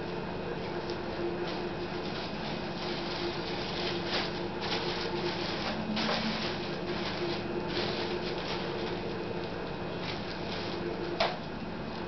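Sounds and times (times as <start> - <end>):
low background hum: 0.0 - 12.0
paper and plastic bag rustling: 0.6 - 11.5.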